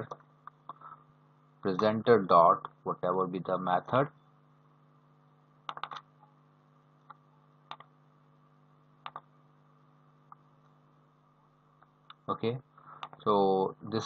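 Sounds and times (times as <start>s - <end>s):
faint steady hum: 0.0s - 14.0s
mouse and keyboard clicks: 5.7s - 6.1s, 7.1s - 7.9s, 9.0s - 9.3s.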